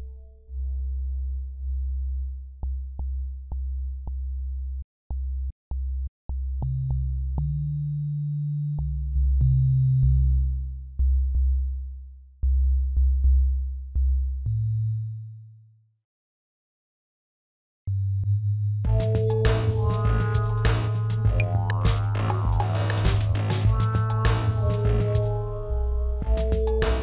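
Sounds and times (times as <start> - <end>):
deep synth bass notes: 17.9 - 27.0.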